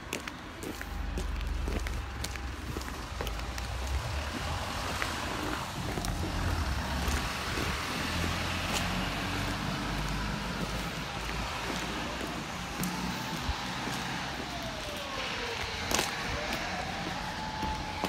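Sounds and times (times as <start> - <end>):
road traffic passing: 0.0 - 18.0
low rumble: 1.0 - 9.2.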